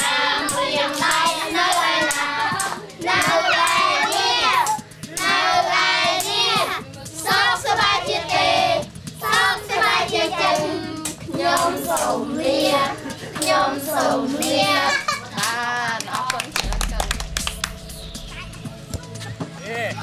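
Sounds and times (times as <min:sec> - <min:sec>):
hand claps: 0:00.0 - 0:05.4, 0:11.0 - 0:12.2, 0:13.3 - 0:14.6, 0:15.4 - 0:17.8
children singing: 0:00.0 - 0:15.2
woman singing: 0:13.8 - 0:17.7.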